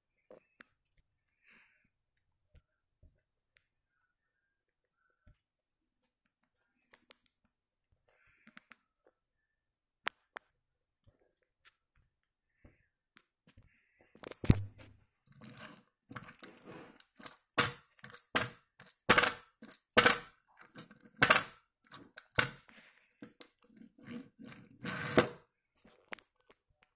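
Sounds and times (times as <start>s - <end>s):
toy car wheels rolling on wood: 15.3s - 25.5s.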